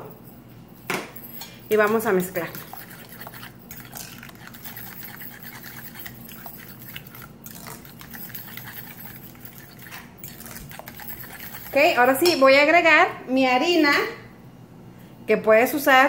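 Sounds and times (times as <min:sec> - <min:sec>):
fork stirring wet batter: 0:01.7 - 0:12.4.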